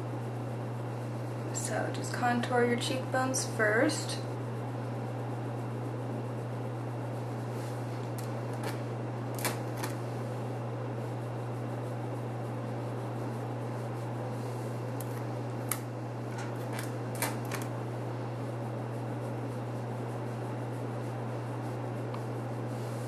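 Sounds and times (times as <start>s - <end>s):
low hum with hiss: 0.0s - 23.0s.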